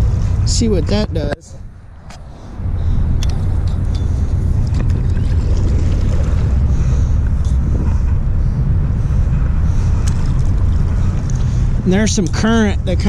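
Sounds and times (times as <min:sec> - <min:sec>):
wind buffeting microphone: 0:00.0 - 0:13.0
paddle strokes splashing water: 0:04.7 - 0:06.6.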